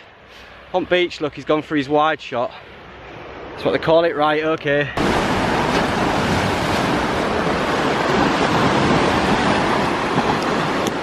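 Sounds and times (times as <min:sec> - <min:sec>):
sea surf washing against rocks: 0:05.0 - 0:11.0.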